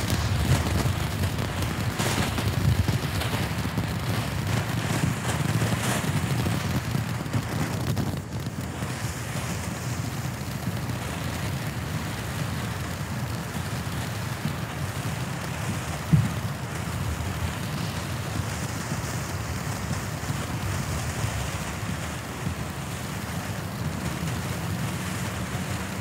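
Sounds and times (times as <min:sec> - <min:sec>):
firework cake hissing: 0:00.0 - 0:26.0
firework pop: 0:16.0 - 0:16.9.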